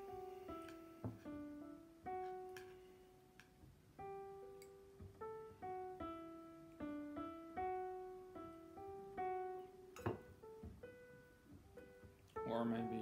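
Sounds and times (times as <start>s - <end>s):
slow piano notes: 0.0s - 13.0s.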